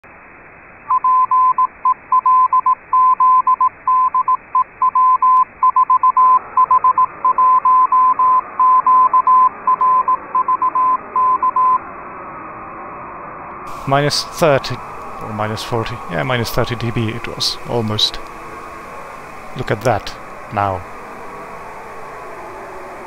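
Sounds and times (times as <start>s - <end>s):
receiver hiss: 0.0s - 23.0s
radio interference noise: 0.8s - 11.9s, 13.5s - 23.0s
morse code tone: 0.9s - 11.8s.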